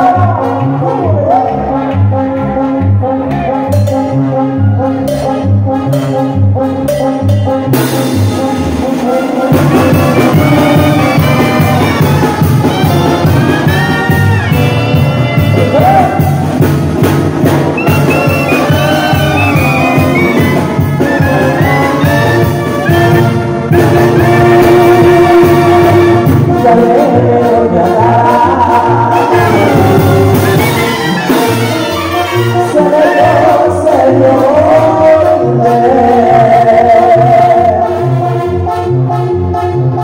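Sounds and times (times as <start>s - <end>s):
percussion: 0.0s - 37.0s
bass line: 0.0s - 40.0s
trumpet section brass melody: 0.0s - 40.0s.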